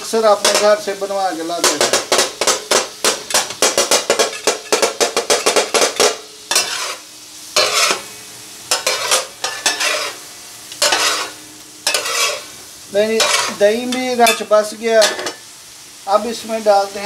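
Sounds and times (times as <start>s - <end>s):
sizzling fat: 0.0s - 17.0s
metal spatula chopping on griddle: 0.4s - 0.8s, 1.6s - 7.0s, 7.6s - 8.1s, 8.7s - 12.5s, 13.1s - 15.4s.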